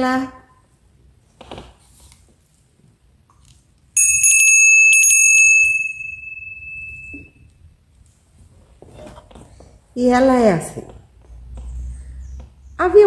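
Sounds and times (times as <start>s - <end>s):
small hand bell ringing: 4.0s - 7.5s.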